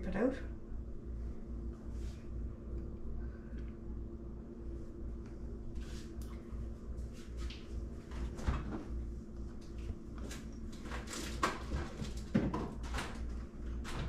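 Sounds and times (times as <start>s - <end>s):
things moved in refrigerator: 9.6s - 14.0s
refrigerator door opening: 10.2s - 14.0s.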